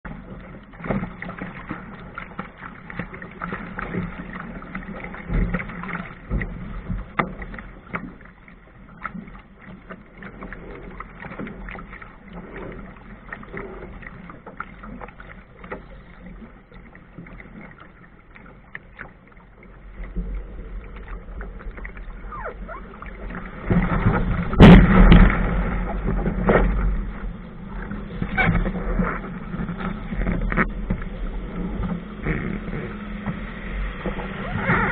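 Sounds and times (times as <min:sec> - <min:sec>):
water splashing against a hull: 0:00.0 - 0:34.9
breaking surf: 0:23.3 - 0:30.1.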